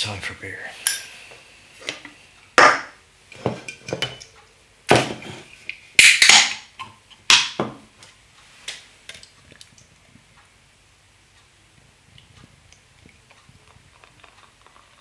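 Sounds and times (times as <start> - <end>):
sharp crack: 6.0 - 6.7.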